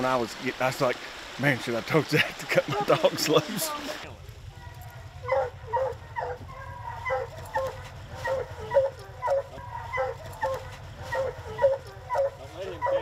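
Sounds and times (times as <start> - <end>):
hounds barking: 4.6 - 13.0.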